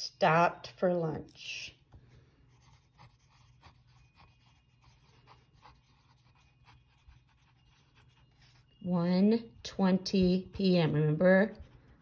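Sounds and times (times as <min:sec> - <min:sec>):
pen scratching on paper: 0:02.5 - 0:08.8, 0:09.5 - 0:12.0.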